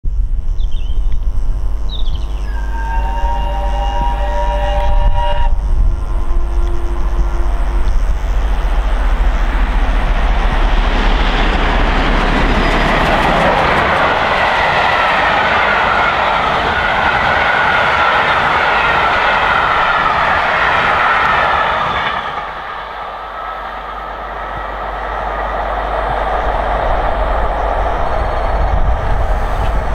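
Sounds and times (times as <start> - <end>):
low rumble: 0.1 - 15.1
steam train passing at speed: 2.4 - 29.9.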